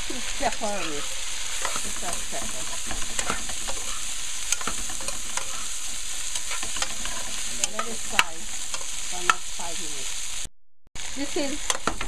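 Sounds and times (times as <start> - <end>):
food sizzling in oil: 0.0 - 12.0
spoon scraping a metal pot: 0.7 - 9.4.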